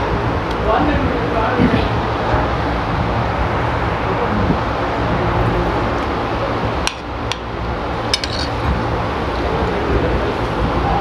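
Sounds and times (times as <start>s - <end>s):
steady background hum: 0.0s - 11.0s
metal spoon clinking on plate: 8.2s - 8.6s.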